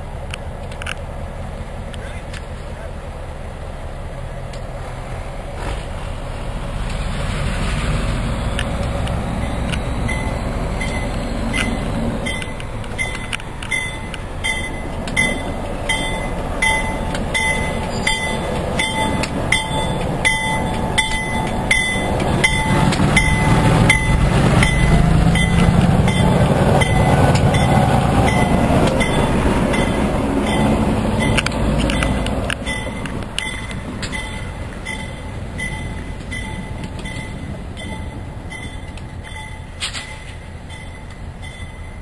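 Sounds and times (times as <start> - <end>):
diesel locomotive rumbling: 0.0 - 42.0
locomotive bell ringing: 8.5 - 42.0.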